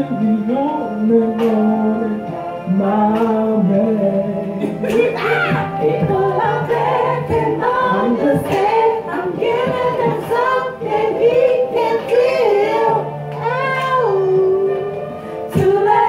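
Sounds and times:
backing track music: 0.0 - 16.0
women singing together: 0.0 - 16.0.

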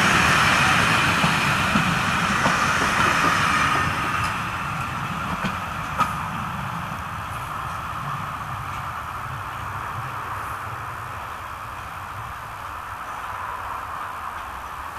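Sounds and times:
train wheels clicking over rail joints: 0.0 - 14.9.

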